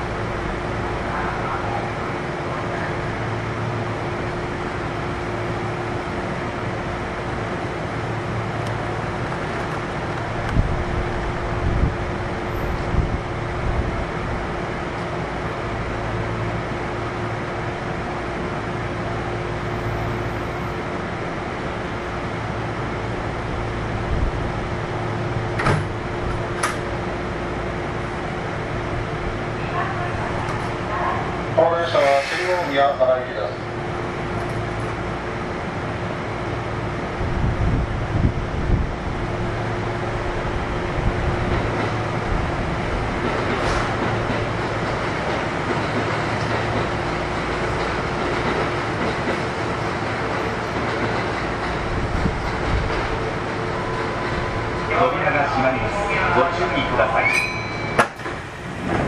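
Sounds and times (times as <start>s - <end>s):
electric train humming: 0.0s - 59.0s.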